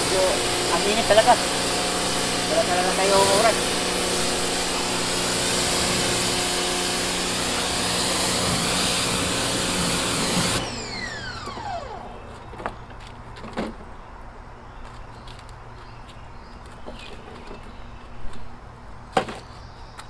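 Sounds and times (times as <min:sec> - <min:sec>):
pressure washer spraying: 0:00.0 - 0:12.2
motor winding down whine: 0:00.0 - 0:12.5.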